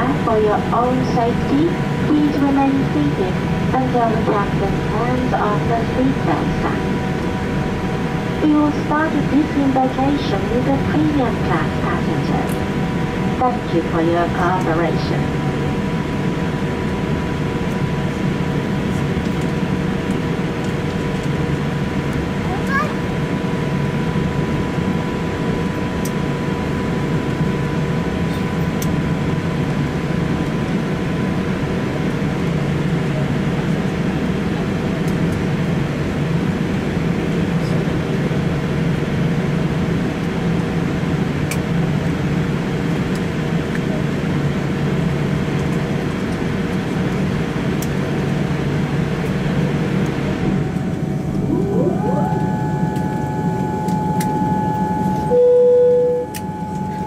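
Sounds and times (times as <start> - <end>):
airplane cabin rumble and hiss: 0.0 - 57.0
rising whine: 50.0 - 57.0
faint steady tones: 50.5 - 57.0.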